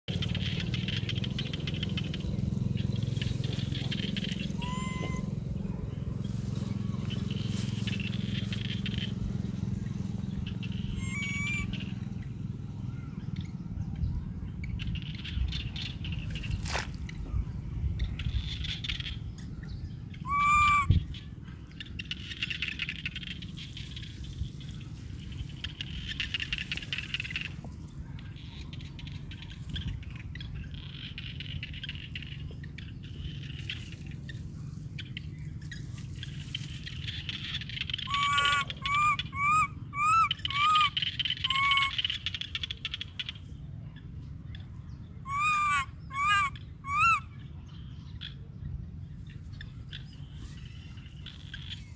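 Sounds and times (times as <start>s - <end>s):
steady low rumble: 0.1s - 51.9s
baby monkey cooing: 3.5s - 5.6s, 10.8s - 11.8s, 20.2s - 21.0s, 37.8s - 42.1s, 45.2s - 47.3s.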